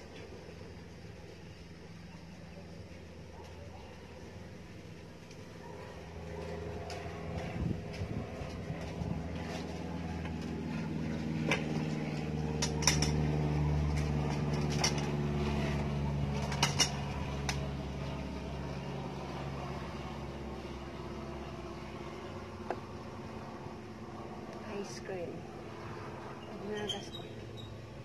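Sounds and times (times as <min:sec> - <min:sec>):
low mechanical hum: 0:00.0 - 0:28.0
sharp clicks and light knocks: 0:11.4 - 0:13.2, 0:16.4 - 0:17.6.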